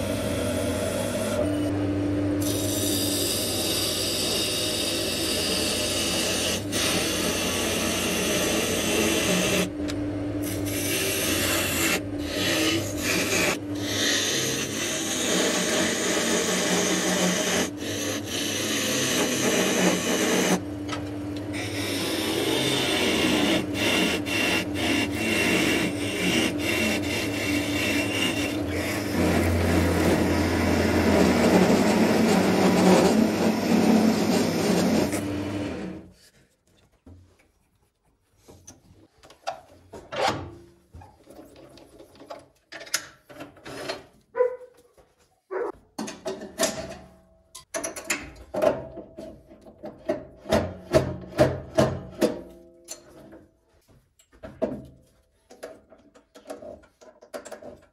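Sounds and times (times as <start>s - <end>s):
turning tool scraping wood: 2.4s - 9.7s, 10.5s - 20.6s, 21.5s - 36.6s
lathe motor hum: 21.4s - 36.1s.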